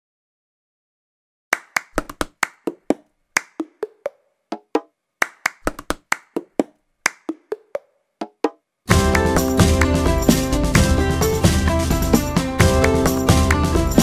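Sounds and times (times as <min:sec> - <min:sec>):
hand claps: 0:01.5 - 0:10.1, 0:12.6 - 0:14.0.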